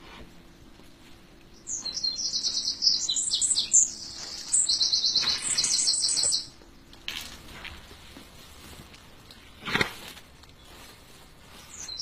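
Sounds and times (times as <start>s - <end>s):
songbird trilling: 1.5s - 6.6s, 11.7s - 12.0s.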